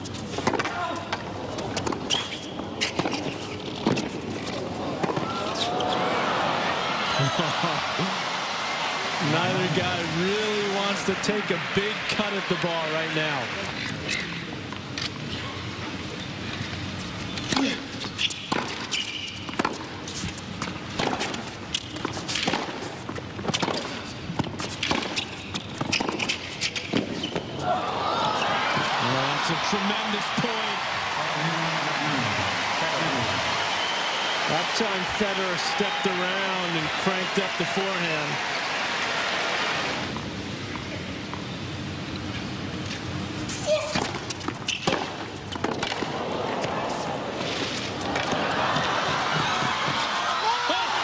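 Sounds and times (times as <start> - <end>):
crowd noise: 0.0 - 18.0, 26.1 - 51.0
tennis racquets hitting ball: 0.2 - 6.0, 17.4 - 27.4, 43.7 - 50.2
crowd shouts and calls: 4.7 - 13.8, 27.5 - 40.1, 45.8 - 51.0
racket striking tennis ball: 43.7 - 48.4
tennis ball bouncing: 43.9 - 47.2.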